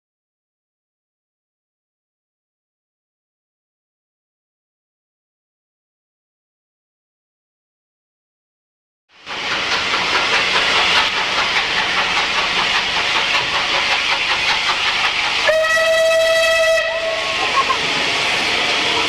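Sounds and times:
steam hissing: 9.2 - 19.0
steam whistle: 15.4 - 17.7.

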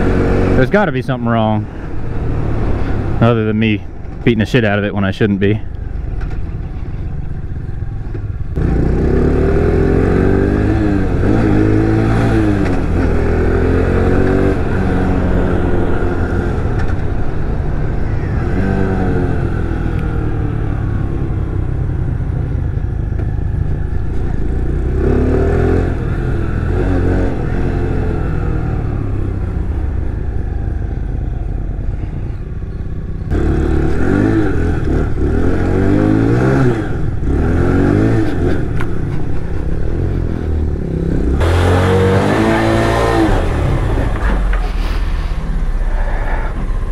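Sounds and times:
motorcycle engine revving: 0.0 - 1.1, 6.2 - 44.9.

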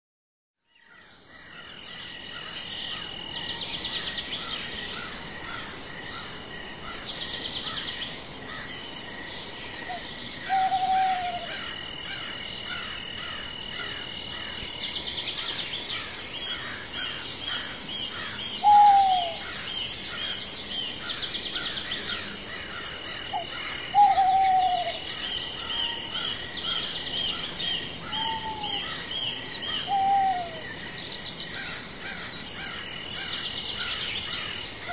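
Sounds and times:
high insect drone: 0.9 - 34.9.

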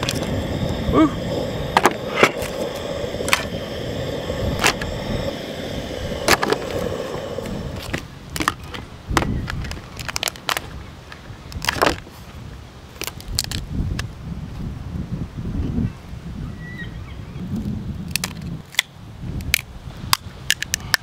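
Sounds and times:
steady rushing hiss: 0.0 - 13.8.

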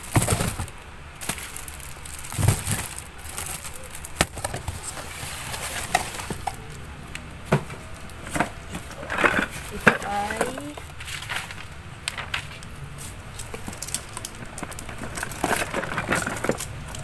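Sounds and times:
cardboard boxes knocking and rustling: 0.0 - 1.4, 2.2 - 3.6.

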